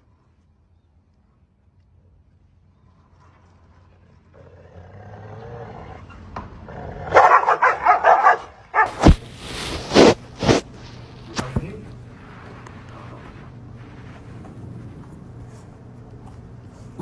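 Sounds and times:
dogs snarling and barking: 4.1 - 11.0
dogs growling: 4.2 - 8.2.

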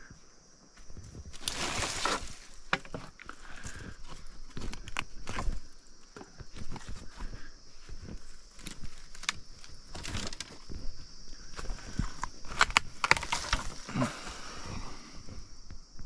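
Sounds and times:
footsteps crunching through undergrowth: 0.7 - 13.9
sharp cracks and snaps: 4.5 - 5.7, 8.5 - 10.7, 11.6 - 13.9.

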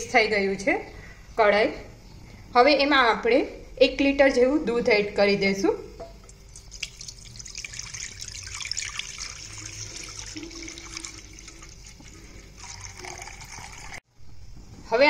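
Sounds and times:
milk pouring into a pan: 6.5 - 14.0.

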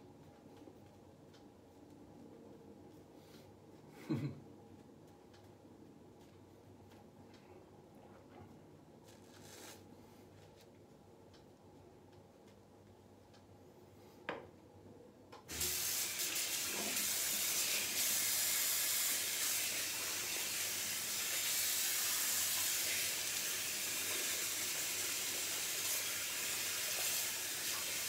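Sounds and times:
tap water running: 15.5 - 28.0.

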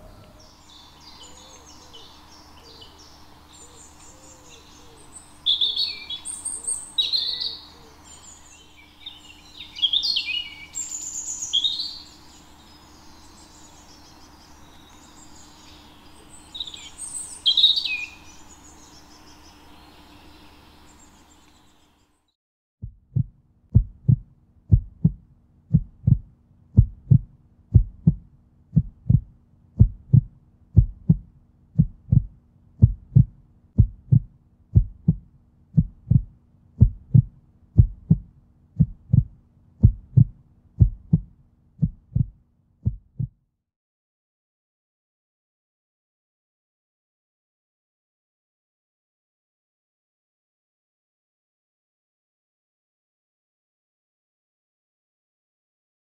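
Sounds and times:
songbirds chirping: 0.0 - 22.2, 24.1 - 42.3
heartbeat thumps: 22.8 - 43.4.

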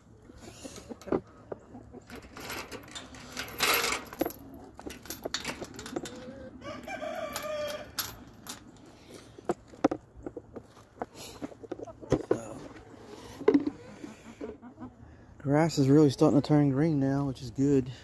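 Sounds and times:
chickens clucking: 0.0 - 2.4, 4.3 - 7.8, 8.7 - 17.2
rooster crowing: 6.4 - 8.0
chicken squawk: 13.7 - 15.2.

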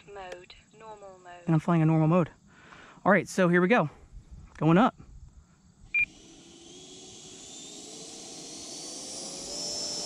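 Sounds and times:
electric ducted fan whine: 5.8 - 10.0.

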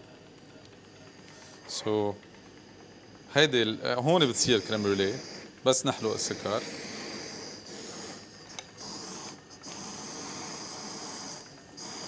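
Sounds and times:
blowtorch flame hissing: 3.1 - 12.0.

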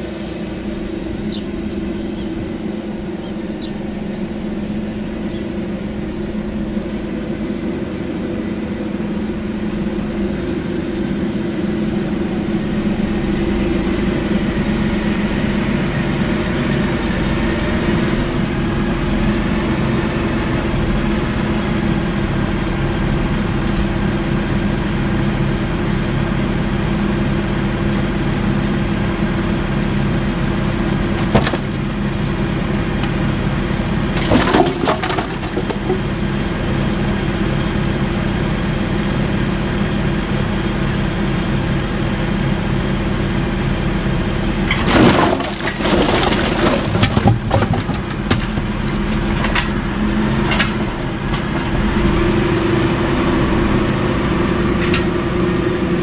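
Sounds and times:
tractor engine running: 0.0 - 56.0
logs clattering down: 30.8 - 36.3, 44.6 - 51.9, 54.8 - 55.1.

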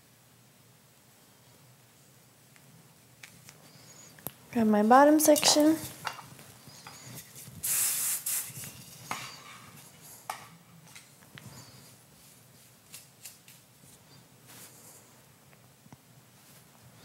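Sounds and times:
hairspray aerosol hiss: 7.6 - 8.8.

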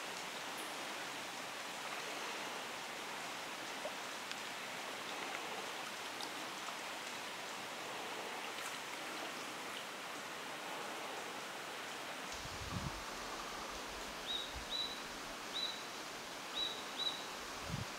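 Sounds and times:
stream water flowing: 0.0 - 17.9
faint ticks: 3.8 - 5.5.

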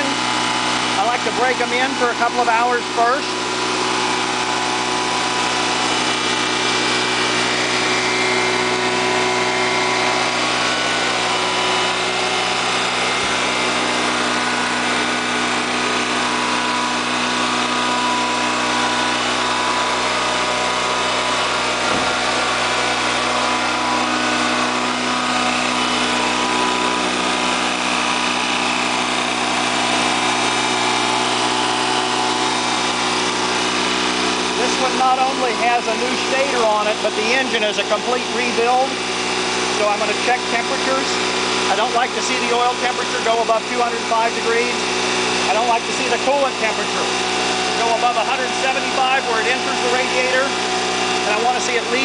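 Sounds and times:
generator engine running: 0.0 - 52.0.

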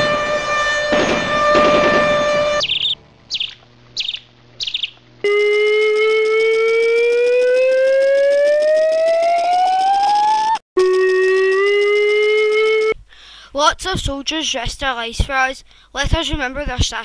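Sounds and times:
air-raid siren rising: 0.0 - 3.5, 5.2 - 13.0
steady siren tone: 0.0 - 13.0.

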